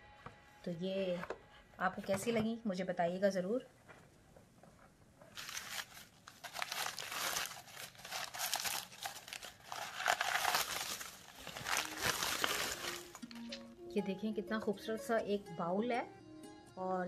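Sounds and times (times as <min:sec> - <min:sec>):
newspaper and plastic bag crinkling: 0:05.3 - 0:13.6.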